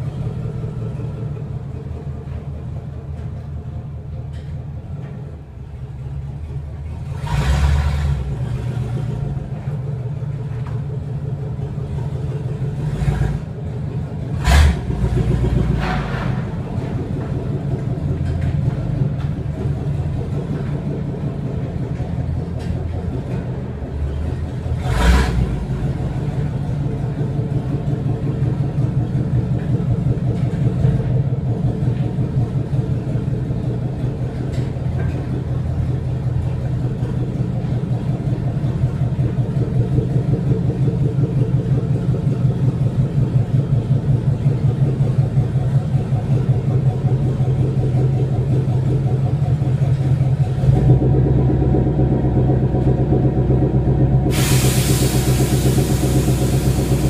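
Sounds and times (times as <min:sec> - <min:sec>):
truck engine on open headers: 0:00.0 - 0:57.0.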